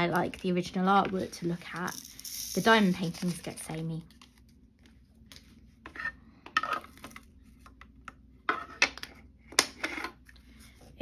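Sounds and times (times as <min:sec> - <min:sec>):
beads rattling in plastic tray: 0:01.7 - 0:03.3.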